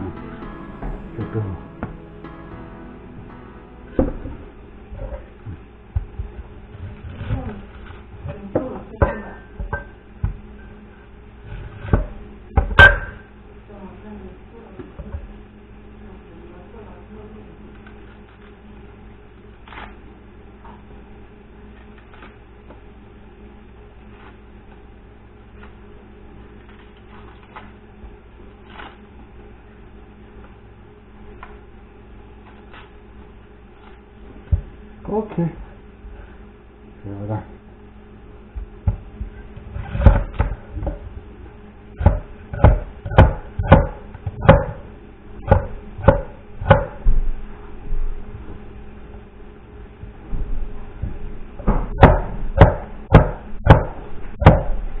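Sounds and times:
low electrical hum: 0.0 - 55.0
knife chopping on wooden board: 42.0 - 44.9, 45.5 - 47.0.

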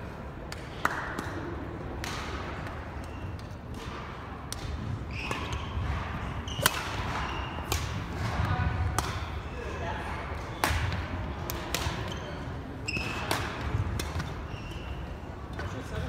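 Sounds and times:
rackets hitting shuttlecock: 0.5 - 9.4, 10.3 - 15.7
shoes squeaking on wooden floor: 14.5 - 15.1.

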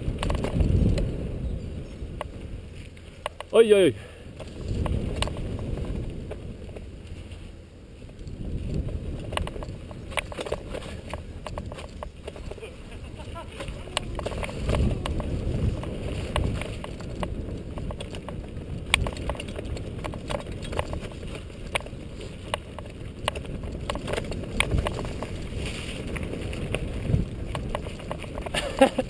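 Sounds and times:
bike rattling over bumps: 0.0 - 29.0
tyres rumbling on gravel: 0.0 - 29.0.

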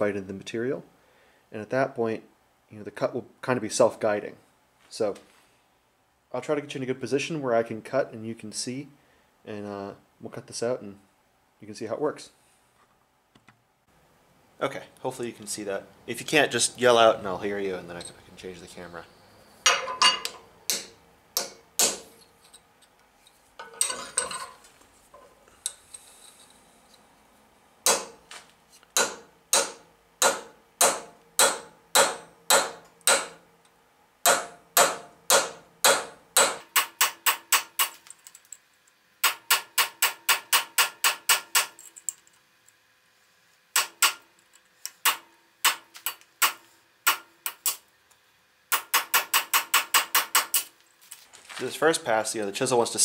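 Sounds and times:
hammer striking chisel on steel: 19.7 - 22.2, 27.8 - 28.2, 29.0 - 33.4, 34.3 - 38.0, 39.2 - 41.8, 43.8 - 44.2, 48.7 - 50.7.

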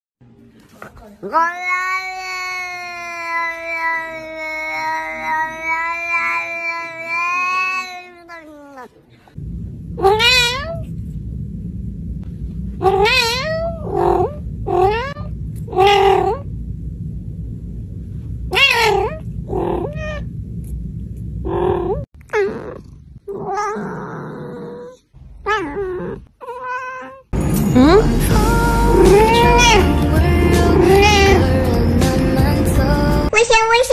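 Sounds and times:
cat meowing in drawn-out calls: 1.2 - 8.9, 10.0 - 10.8, 12.8 - 16.4, 18.5 - 20.2, 25.4 - 27.3, 28.9 - 29.9.

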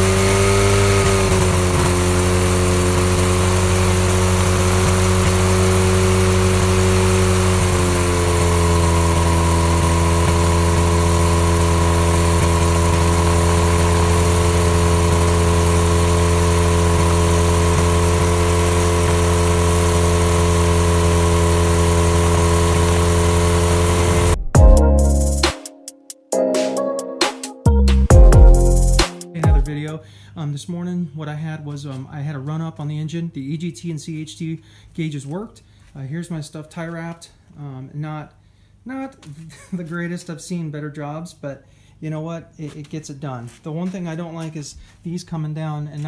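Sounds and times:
small aircraft engine running: 0.0 - 25.4.

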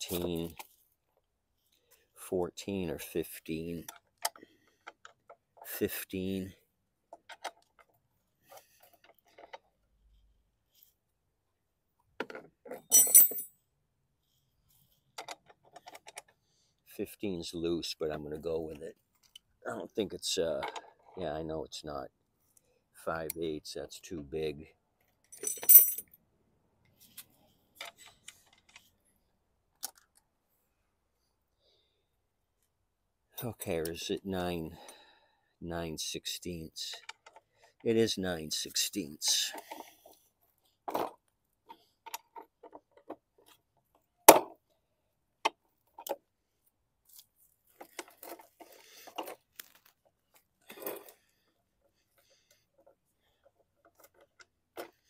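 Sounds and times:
metal sockets clinking: 12.8 - 13.4.

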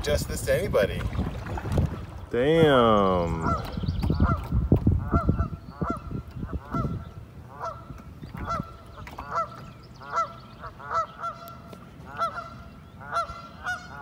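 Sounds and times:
goose honking: 6.6 - 7.8, 9.3 - 14.0.

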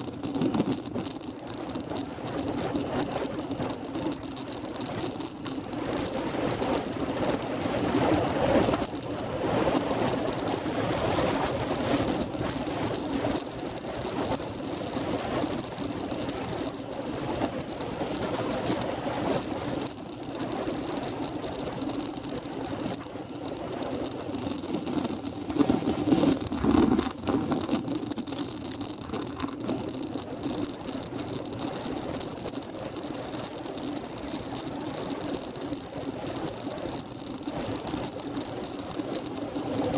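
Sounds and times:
vehicle wind and road noise: 0.0 - 39.9.

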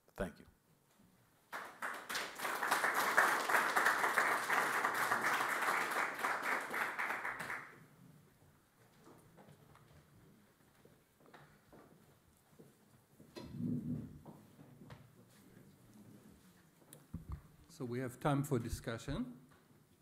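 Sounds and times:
audience applauding: 1.5 - 7.8.

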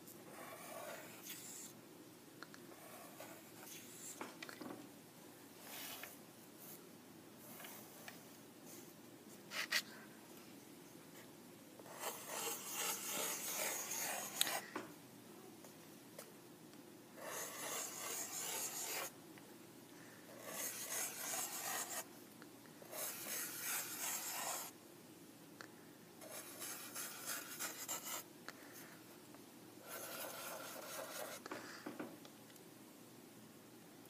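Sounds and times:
marker scratching on paper: 0.3 - 1.8, 2.8 - 4.2, 11.8 - 14.6, 17.2 - 19.1, 20.4 - 22.1, 22.9 - 24.8, 26.2 - 28.2, 29.8 - 31.4.

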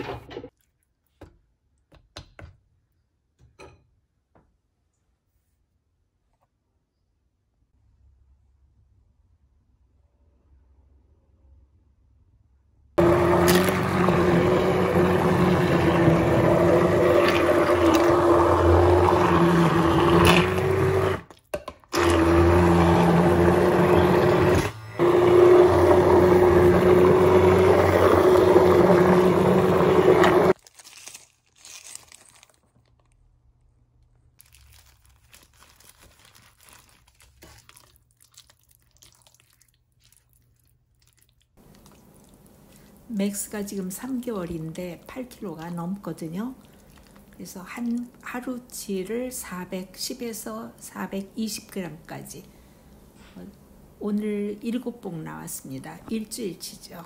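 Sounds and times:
immersion blender motor hum: 13.0 - 21.3, 22.0 - 30.6.

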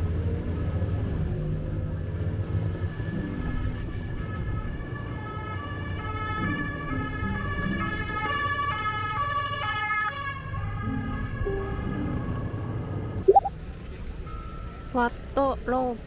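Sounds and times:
background music melody: 13.3 - 13.6.

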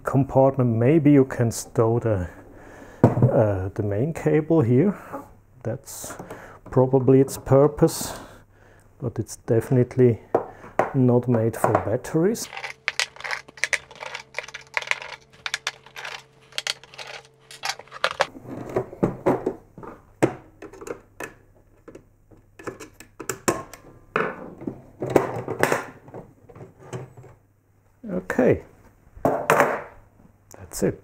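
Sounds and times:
plastic casing clicking and rattling: 12.4 - 18.3
plastic cover scraping and clacking: 12.4 - 18.3.

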